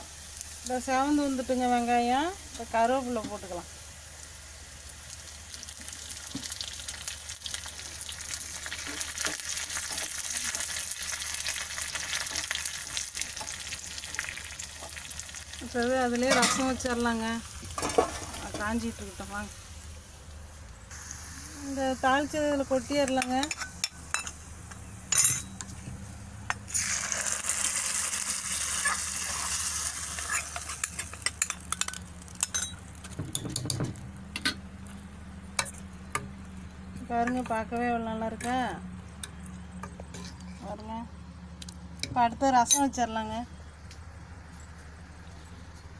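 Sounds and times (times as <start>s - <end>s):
onions sizzling in hot oil: 0.0s - 34.0s
steel spoon stirring: 28.8s - 32.8s.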